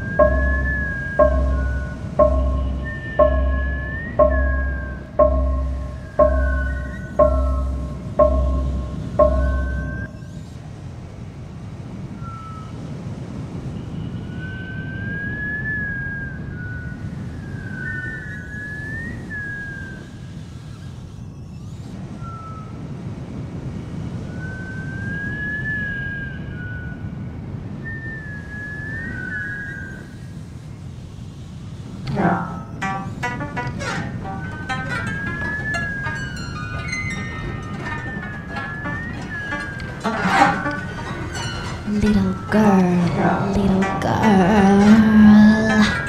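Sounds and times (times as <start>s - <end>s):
high wavering whistle: 0.0s - 10.4s, 32.3s - 43.1s.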